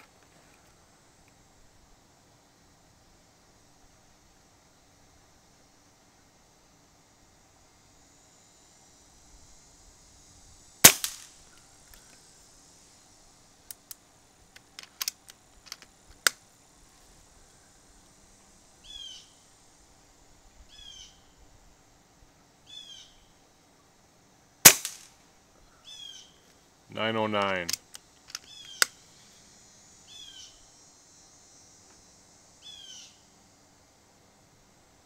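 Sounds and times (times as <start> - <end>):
air rifle shots: 10.8 - 11.4, 24.6 - 25.1
metallic clicks of rifle action: 14.6 - 16.4, 27.4 - 29.0
bird chirping: 18.8 - 19.4, 20.7 - 21.3, 22.7 - 23.3, 25.7 - 26.4, 28.4 - 29.0, 30.1 - 30.7, 32.6 - 33.2.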